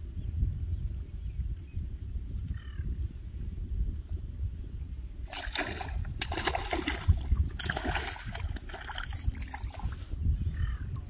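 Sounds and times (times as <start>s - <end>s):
fish splashing in water: 5.3s - 9.9s.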